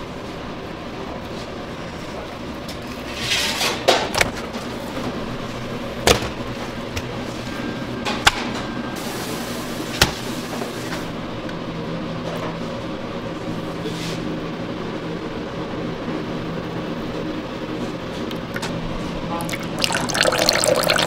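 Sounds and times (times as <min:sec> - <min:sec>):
kitchen hum: 0:18.1 - 0:21.0.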